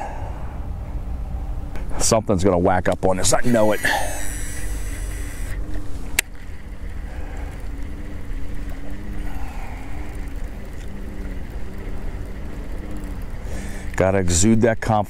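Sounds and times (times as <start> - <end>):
fishing reel whirring: 3.0 - 15.0.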